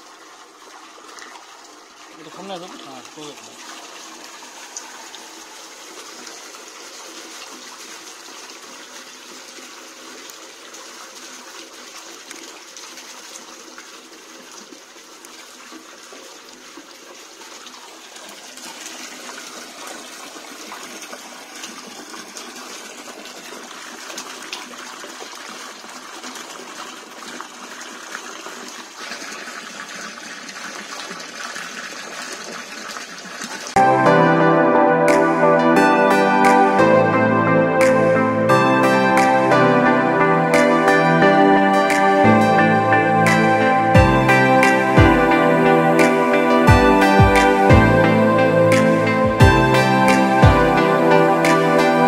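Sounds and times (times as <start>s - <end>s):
water pouring from bucket: 0.0s - 33.8s.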